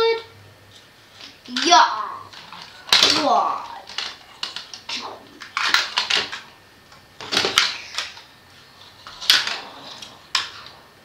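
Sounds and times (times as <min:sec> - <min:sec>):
plastic toys clacking together: 0:01.5 - 0:06.4, 0:07.2 - 0:08.2, 0:09.0 - 0:10.7.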